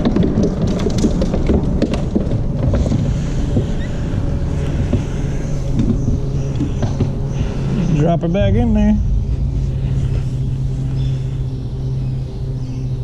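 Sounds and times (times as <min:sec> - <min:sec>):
knocks and clicks: 0:00.0 - 0:07.5
electric trolling motor humming: 0:01.1 - 0:13.0.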